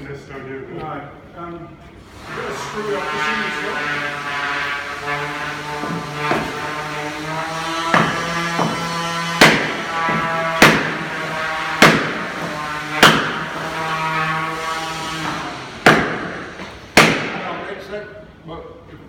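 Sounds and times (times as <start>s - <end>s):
hammer blows on wooden block: 5.1s - 6.6s, 7.8s - 14.3s, 15.8s - 17.4s.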